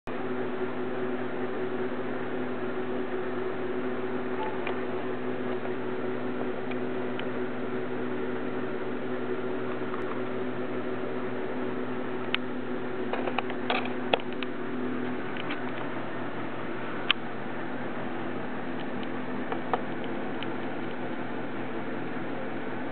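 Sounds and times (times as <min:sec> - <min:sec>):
steady machine hum: 0:00.0 - 0:22.9.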